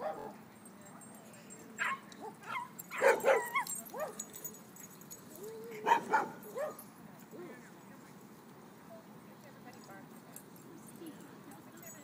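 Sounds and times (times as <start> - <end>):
small dogs barking and yipping: 0.0 - 0.4, 1.8 - 6.9.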